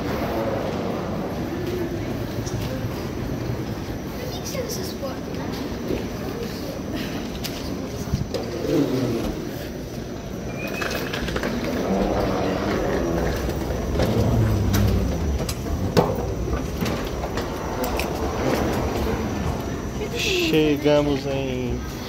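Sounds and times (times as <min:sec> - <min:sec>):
escalator low hum: 0:11.6 - 0:20.5.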